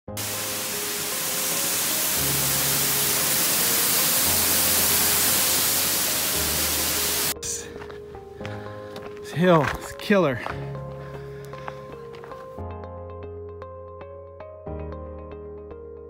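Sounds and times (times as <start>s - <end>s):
waterfall rushing: 0.1s - 7.6s
soft ambient music: 0.1s - 16.0s.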